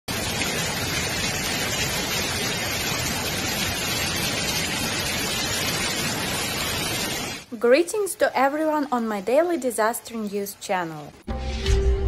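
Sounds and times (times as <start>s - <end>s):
floodwater rushing: 0.1s - 11.2s
heavy rain: 0.1s - 11.3s.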